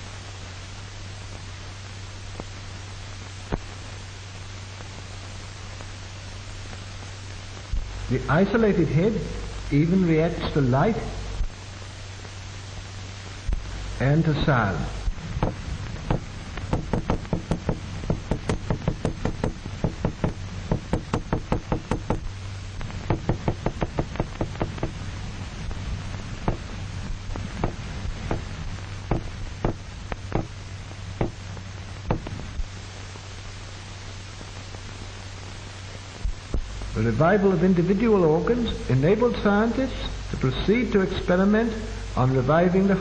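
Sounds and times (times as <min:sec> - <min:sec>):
knocking on a hard surface: 0:15.4 - 0:22.2, 0:23.1 - 0:25.0, 0:26.5 - 0:26.7, 0:27.6 - 0:28.5, 0:29.1 - 0:29.8, 0:32.1 - 0:32.3.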